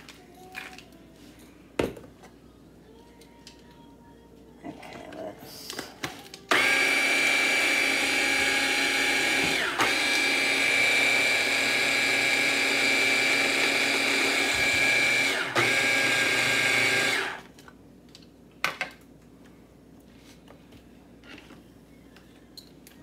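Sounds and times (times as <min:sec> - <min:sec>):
electric mixer whining: 0:06.5 - 0:17.4.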